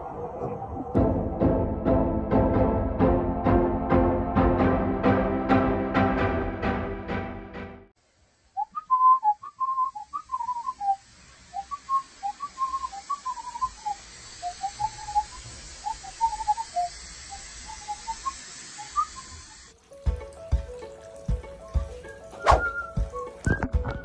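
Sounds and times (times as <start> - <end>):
steady hiss: 8.0 - 23.5
person whistling a tune: 8.6 - 11.0, 11.6 - 16.9, 22.1 - 24.0.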